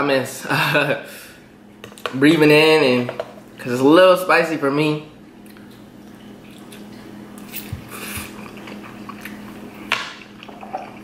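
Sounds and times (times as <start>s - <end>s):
man chewing noodles: 5.4s - 11.0s.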